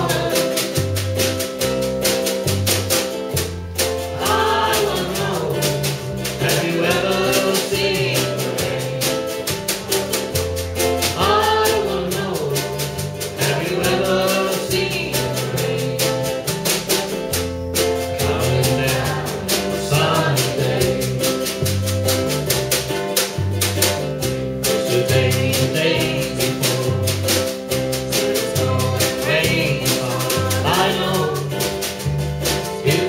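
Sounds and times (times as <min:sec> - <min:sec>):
man singing: 0:00.0 - 0:00.9, 0:04.2 - 0:09.5, 0:11.1 - 0:16.6, 0:18.0 - 0:21.6, 0:24.6 - 0:31.9, 0:32.6 - 0:33.0
woman singing: 0:00.0 - 0:00.9, 0:04.2 - 0:09.3, 0:11.1 - 0:16.5, 0:28.1 - 0:31.7
drum beat: 0:00.0 - 0:33.0
strummed ukulele and guitar: 0:00.0 - 0:33.0.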